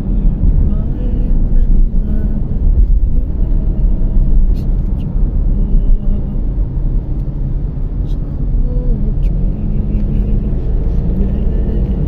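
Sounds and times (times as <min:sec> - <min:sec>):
car engine rumble: 0:00.0 - 0:12.0.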